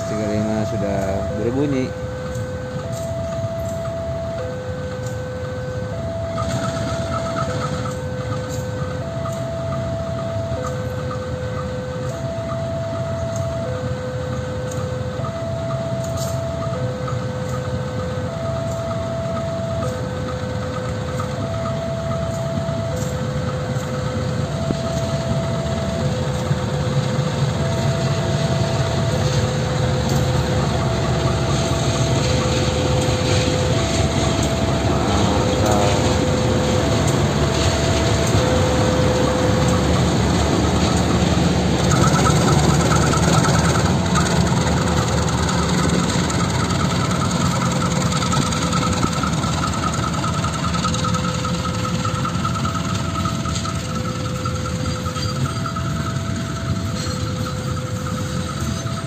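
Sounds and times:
diesel locomotive passing: 0:00.0 - 0:59.0.

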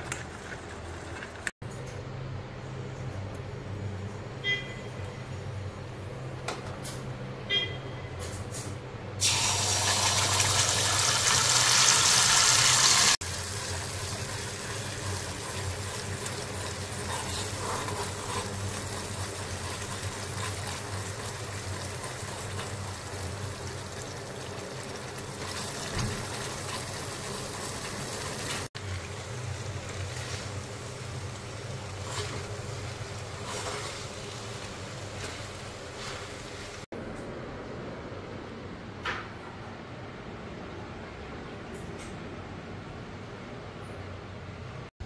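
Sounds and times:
sauce sizzling in hot oil: 0:09.2 - 0:36.9.

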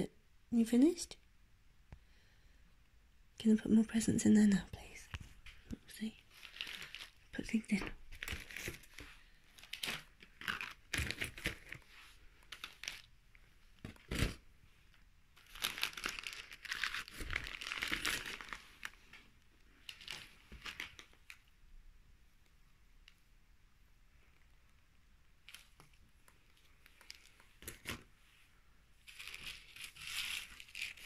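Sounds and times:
wrapping paper crinkling: 0:06.0 - 0:13.2, 0:15.4 - 0:19.1, 0:19.7 - 0:21.4, 0:29.0 - 0:31.0.

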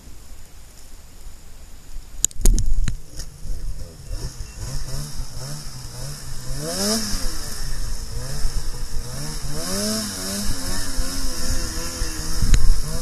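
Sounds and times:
steady hiss: 0:00.0 - 0:13.0
snowmobile engine revving: 0:03.0 - 0:13.0.

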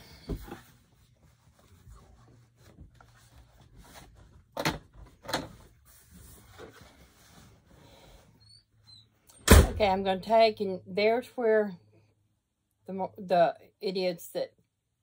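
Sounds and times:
fabric rustling: 0:00.0 - 0:08.3.

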